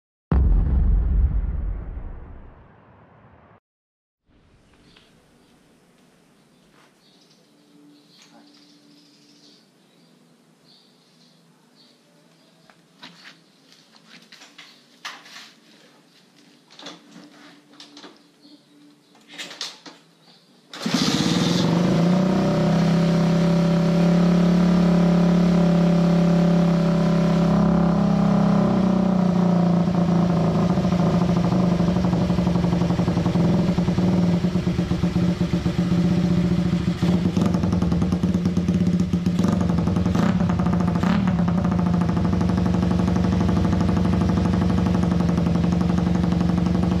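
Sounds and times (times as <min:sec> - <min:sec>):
motorcycle engine starting and idling: 0:20.7 - 0:47.0.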